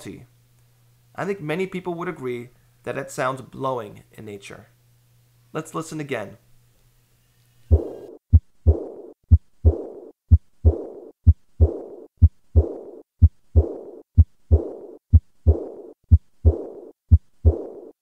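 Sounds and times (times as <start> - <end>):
soft blowing heart murmur: 7.7 - 17.9
heartbeat through stethoscope: 7.7 - 18.0.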